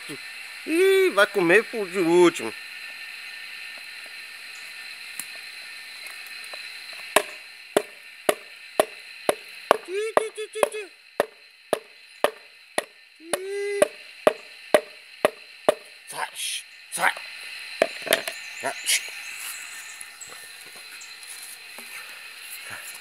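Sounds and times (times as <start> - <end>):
pitched calls: 7.2 - 17.2.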